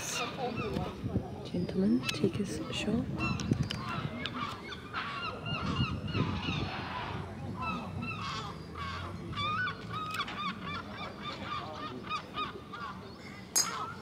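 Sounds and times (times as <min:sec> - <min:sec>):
flock of birds calling: 0:00.0 - 0:14.0.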